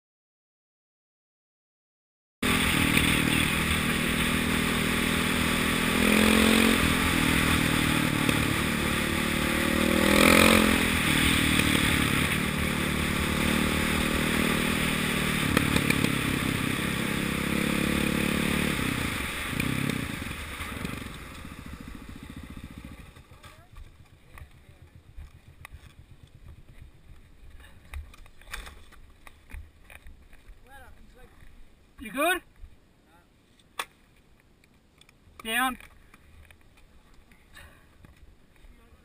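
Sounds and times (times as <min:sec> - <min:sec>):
dirt bike engine revving: 0:02.4 - 0:26.8.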